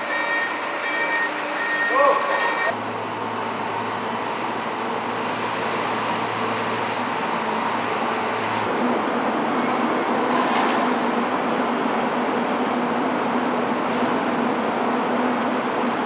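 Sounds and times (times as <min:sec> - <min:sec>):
forklift working: 0:00.0 - 0:16.0.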